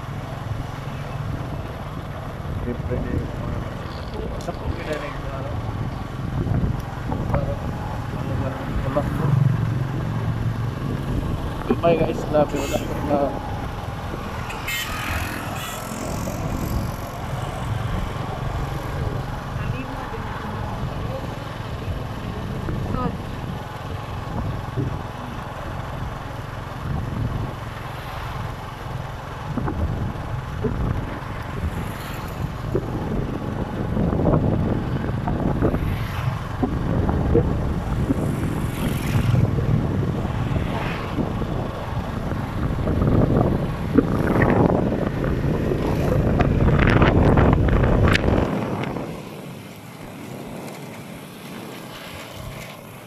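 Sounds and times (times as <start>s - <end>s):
wind buffeting microphone: 0.0s - 27.8s, 28.8s - 53.0s
vehicle engine and road noise: 0.0s - 53.0s.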